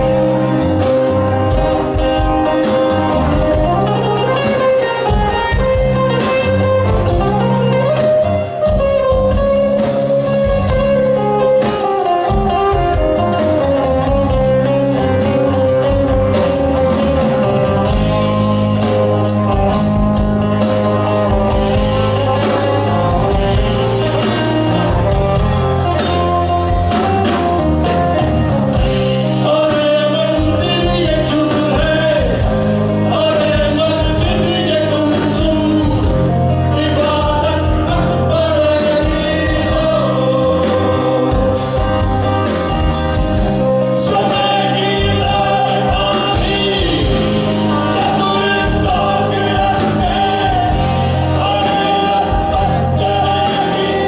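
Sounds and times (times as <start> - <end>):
rock band playing live: 0.0 - 54.0
man singing: 28.7 - 42.2, 43.6 - 54.0.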